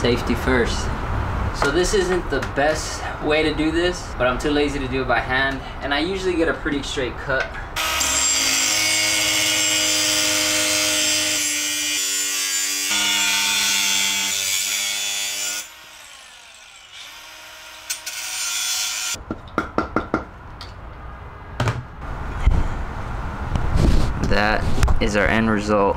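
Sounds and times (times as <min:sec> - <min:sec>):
power saw cutting metal: 0:07.8 - 0:19.2.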